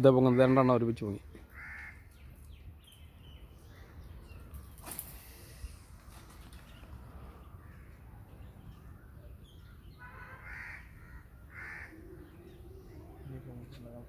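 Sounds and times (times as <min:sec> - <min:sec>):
crow cawing: 0:01.4 - 0:02.2, 0:10.0 - 0:12.4.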